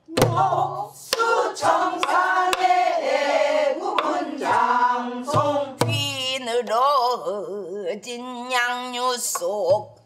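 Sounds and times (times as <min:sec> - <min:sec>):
woman singing with vibrato: 0:00.0 - 0:02.8, 0:04.4 - 0:09.9
voices singing together: 0:00.0 - 0:06.2
barrel drum strikes: 0:00.1 - 0:03.0, 0:03.9 - 0:04.6, 0:05.2 - 0:06.2.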